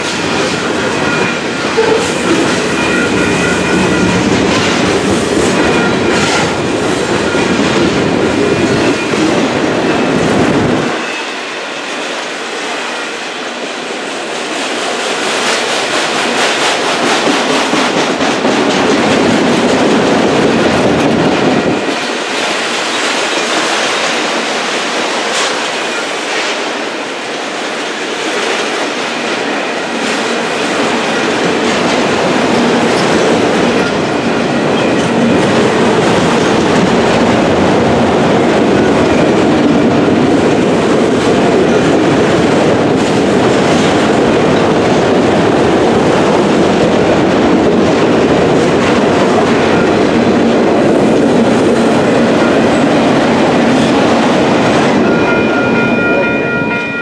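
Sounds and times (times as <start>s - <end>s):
train wheels rumbling on rails: 0.0s - 57.0s.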